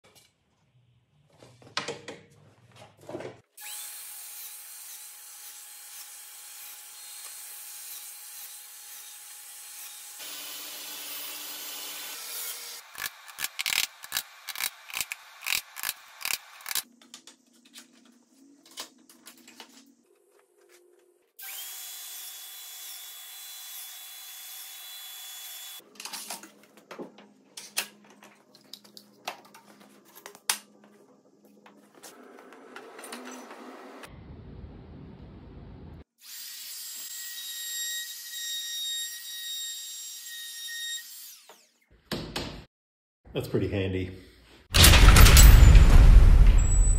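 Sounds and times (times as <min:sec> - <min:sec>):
power tool running: 0:09.8 - 0:16.8.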